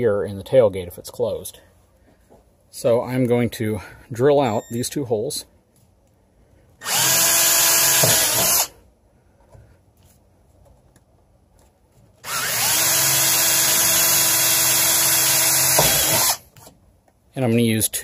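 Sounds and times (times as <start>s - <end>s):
cordless drill motor whine: 6.8s - 8.7s, 12.2s - 16.4s.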